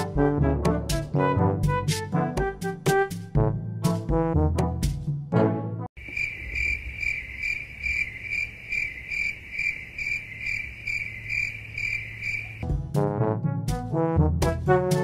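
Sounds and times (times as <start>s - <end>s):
brass and piano music: 0.0s - 5.9s, 12.6s - 15.0s
cricket chirping: 6.0s - 12.6s.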